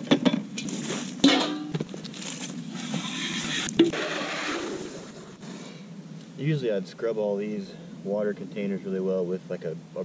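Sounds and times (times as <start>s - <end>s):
metal bowl clanking: 1.2s - 1.7s.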